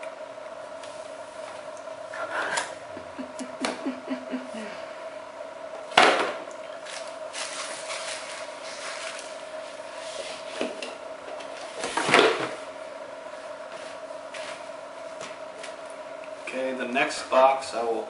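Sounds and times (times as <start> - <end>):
plastic bag rustling: 6.8 - 10.5.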